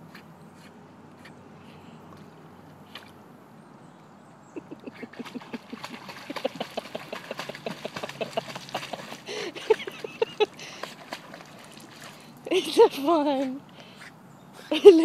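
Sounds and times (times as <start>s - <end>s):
dog splashing in water: 4.9s - 13.0s.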